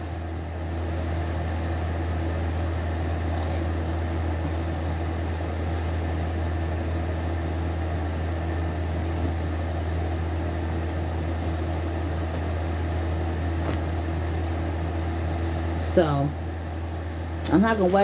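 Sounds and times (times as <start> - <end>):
low mechanical hum: 0.0 - 18.0
denim rustling: 10.6 - 15.9.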